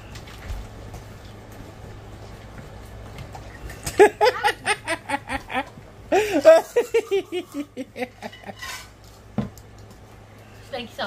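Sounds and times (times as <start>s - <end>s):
people laughing: 3.8s - 8.6s.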